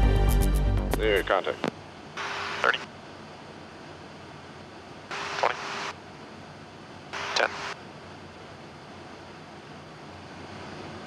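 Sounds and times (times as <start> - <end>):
aircraft noise hissing: 0.8 - 11.0
radio static bursts: 1.0 - 2.9, 5.1 - 6.0, 7.1 - 7.8.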